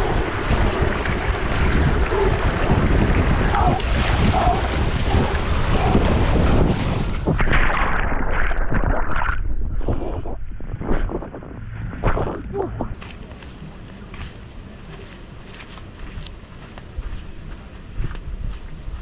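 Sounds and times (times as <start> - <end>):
water rushing down slide: 0.0 - 11.0
wind buffeting microphone: 0.0 - 19.0
splash into pool: 6.0 - 10.3.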